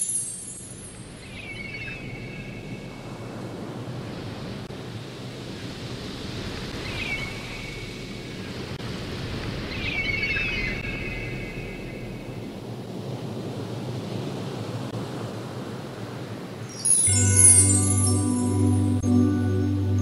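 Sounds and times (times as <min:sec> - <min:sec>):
shimmering sparkle tones: 0:00.0 - 0:01.2, 0:16.7 - 0:20.0.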